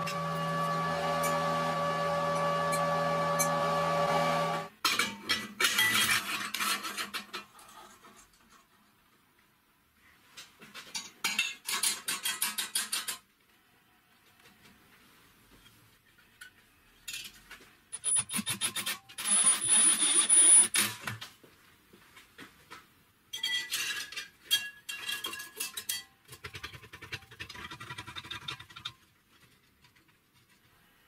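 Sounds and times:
band saw blade scraping metal: 0:00.0 - 0:04.7.

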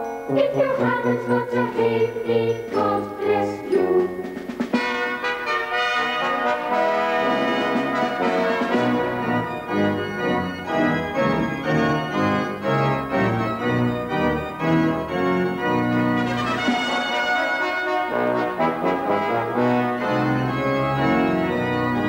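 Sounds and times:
organ music with bass line: 0:00.0 - 0:22.0.

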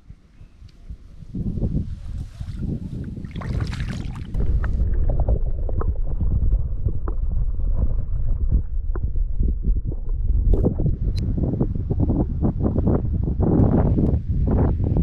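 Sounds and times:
muffled underwater rumble: 0:00.5 - 0:15.0
water splashing: 0:02.1 - 0:06.3.

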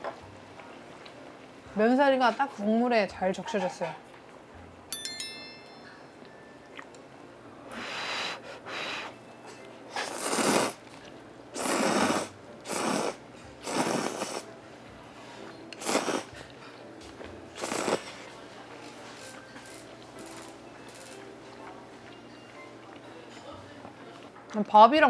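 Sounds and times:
person slurping noodles: 0:09.9 - 0:10.8, 0:11.6 - 0:14.5, 0:15.8 - 0:16.4, 0:17.6 - 0:18.1.

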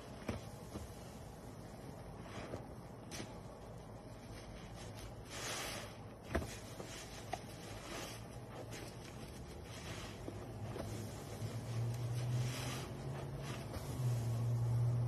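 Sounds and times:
sponge squishing in soap suds: 0:04.2 - 0:15.0.

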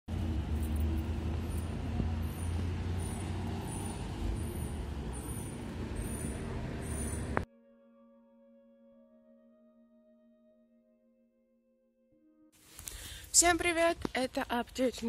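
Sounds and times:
rumble of passing vehicles: 0:00.1 - 0:07.5.

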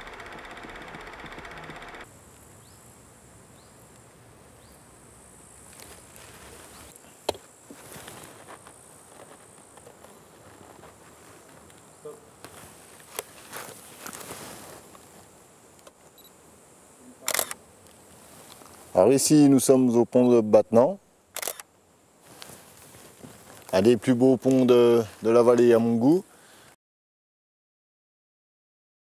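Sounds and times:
film projector clattering: 0:00.0 - 0:02.1
sharp clicks: 0:00.0 - 0:02.1, 0:17.2 - 0:17.6, 0:21.4 - 0:21.7.

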